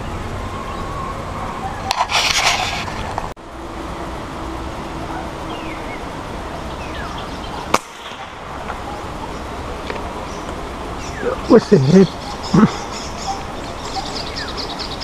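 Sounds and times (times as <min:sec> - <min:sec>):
outdoor background noise: 0:00.0 - 0:15.0
air rifle shot: 0:07.7 - 0:08.4.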